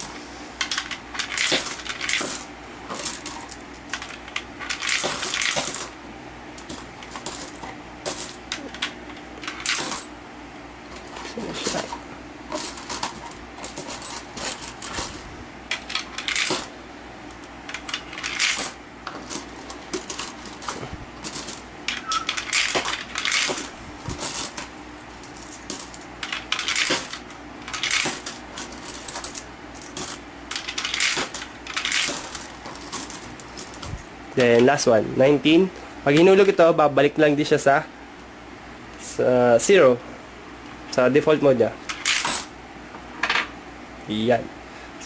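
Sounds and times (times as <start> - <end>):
coins clinking through coin acceptor: 0.6 - 6.0, 6.6 - 10.1, 11.0 - 16.7, 17.7 - 33.8, 41.8 - 42.5.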